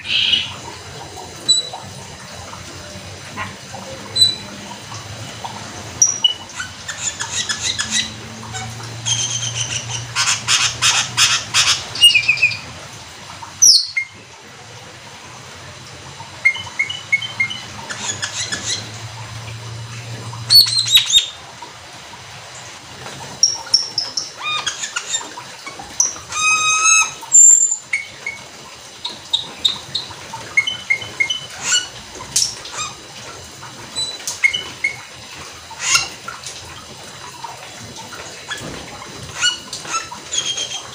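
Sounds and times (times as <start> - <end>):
starling chirping and whistling: 9.1 - 12.6, 13.6 - 14.1, 20.5 - 21.4, 26.0 - 28.2.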